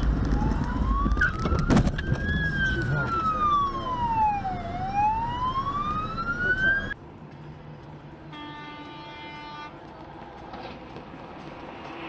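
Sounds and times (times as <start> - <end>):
ambulance siren wailing: 0.0 - 7.0
road noise: 0.0 - 12.0.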